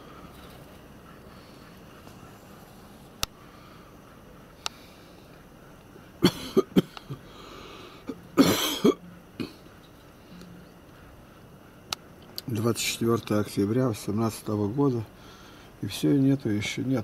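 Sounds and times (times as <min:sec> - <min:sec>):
man coughing: 0:06.2 - 0:07.2, 0:08.1 - 0:09.7.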